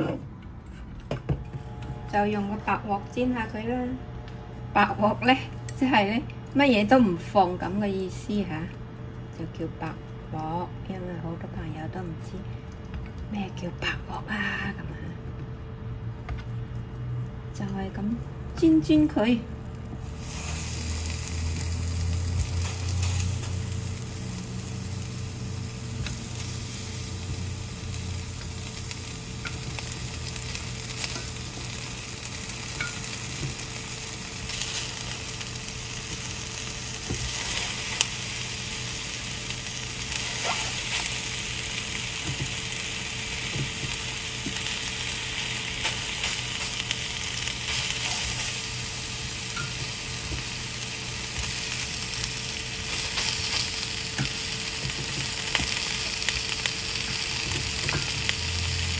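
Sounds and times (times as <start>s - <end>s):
chicken wings sizzling in a pan: 17.8s - 58.9s.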